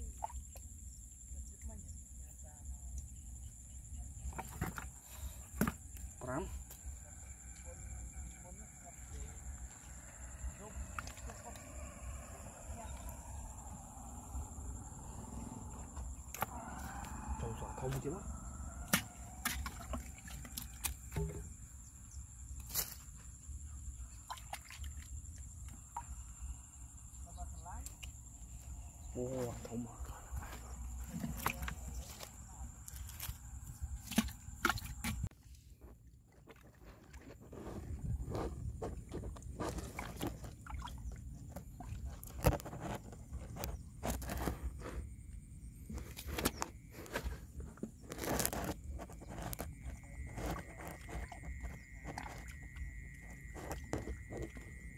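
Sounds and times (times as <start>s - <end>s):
stick scraping dry mud: 46.0s - 52.5s.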